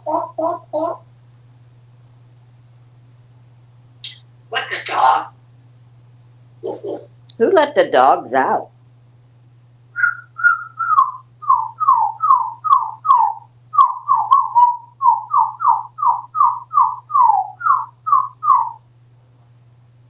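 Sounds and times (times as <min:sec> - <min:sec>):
parrot whistling falling notes: 0:10.0 - 0:18.8.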